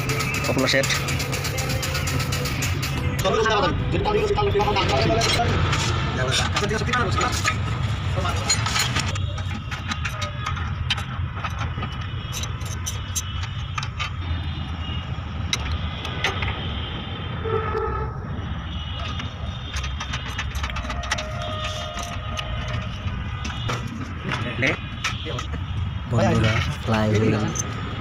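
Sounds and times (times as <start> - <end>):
engine rumbling: 0.0 - 28.0
small metal parts clicking: 8.3 - 14.2, 19.1 - 23.2.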